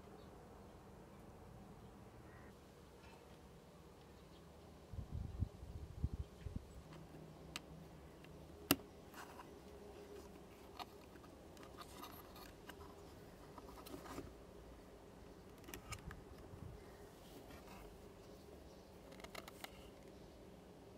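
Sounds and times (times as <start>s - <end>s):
small plastic clicks: 19.0s - 20.2s.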